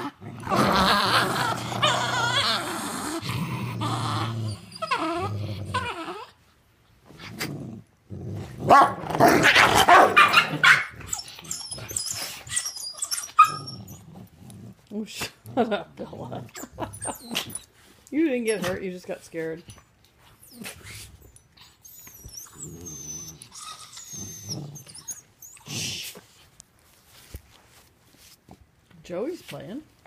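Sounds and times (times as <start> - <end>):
dogs growling: 0.0 - 6.3, 7.1 - 12.6, 13.2 - 17.7, 20.5 - 26.2
dogs snarling and barking: 0.0 - 6.4, 7.0 - 17.7, 20.4 - 26.3.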